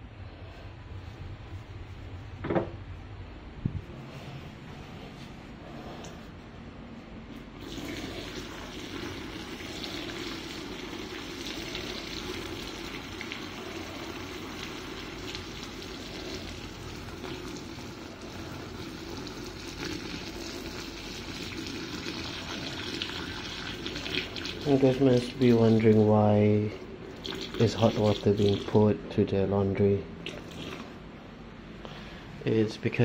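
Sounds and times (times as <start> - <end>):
water pouring into bucket: 7.6 - 26.1, 27.0 - 28.8, 30.2 - 31.0.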